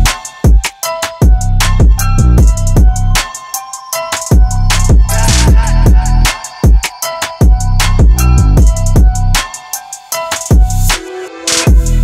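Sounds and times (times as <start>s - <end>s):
background music with drum beat: 0.0s - 12.0s
sliding deep bass notes: 1.3s - 3.2s, 4.4s - 6.3s, 7.6s - 9.4s.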